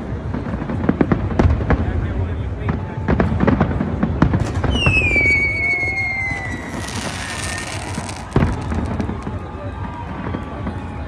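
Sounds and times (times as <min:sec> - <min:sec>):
fireworks bangs: 0:03.0 - 0:10.8
firework whistle falling in pitch: 0:04.5 - 0:09.3.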